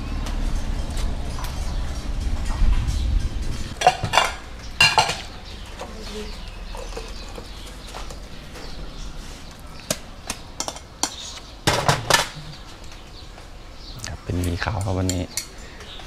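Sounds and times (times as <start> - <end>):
bowls clinking against steel pot: 3.8 - 7.5.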